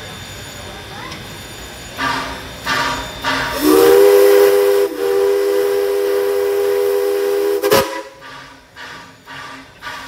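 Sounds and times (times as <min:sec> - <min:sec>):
steam locomotive whistle: 0:02.0 - 0:10.0.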